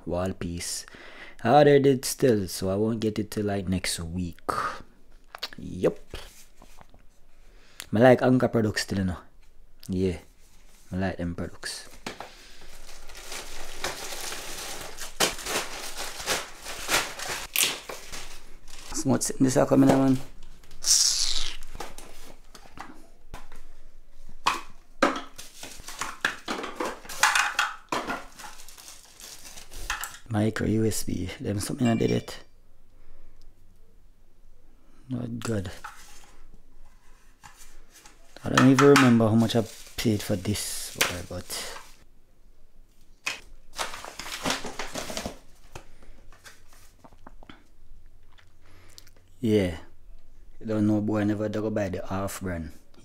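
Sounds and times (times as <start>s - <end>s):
packaging rustling: 11.8s - 20.8s, 25.2s - 30.3s, 37.5s - 42.0s, 43.6s - 47.0s
paper mailer rustling: 11.9s - 20.7s
small boxes knocking on tiled floor: 24.4s - 28.5s.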